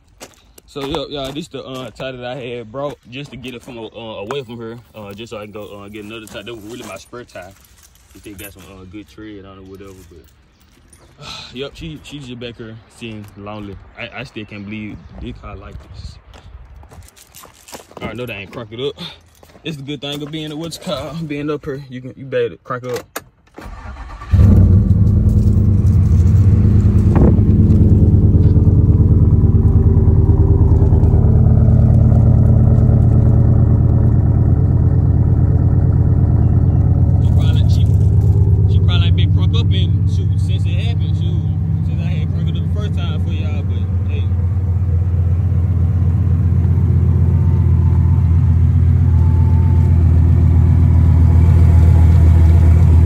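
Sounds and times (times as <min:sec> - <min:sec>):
car engine idling loudly: 0:25.9 - 0:53.0.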